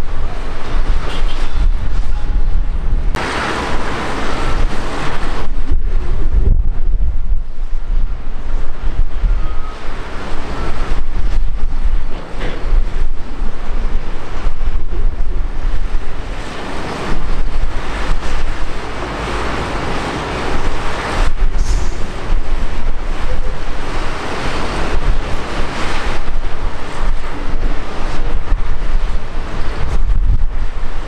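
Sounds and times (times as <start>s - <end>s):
jet engines roaring: 0.0s - 6.2s, 14.5s - 30.0s
wind buffeting microphone: 0.0s - 31.0s.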